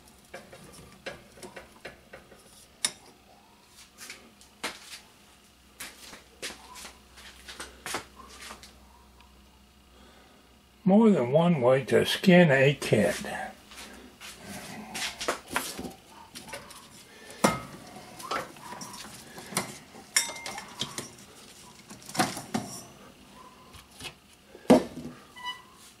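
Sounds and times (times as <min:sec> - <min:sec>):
jars and bottles clinking: 0:18.3 - 0:21.2
glass ringing: 0:20.2 - 0:21.0.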